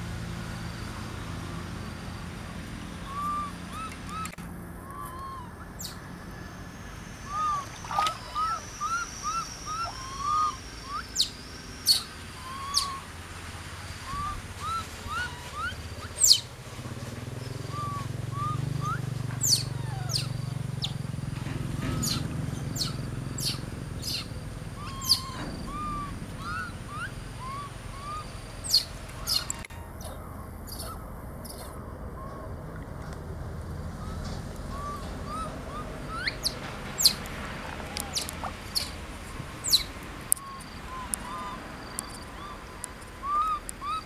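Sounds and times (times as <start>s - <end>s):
baby monkeys squeaking and squealing: 3.1s - 6.0s, 7.2s - 13.1s, 14.1s - 16.5s, 17.6s - 20.9s, 22.0s - 31.8s, 34.0s - 39.0s, 39.6s - 44.0s.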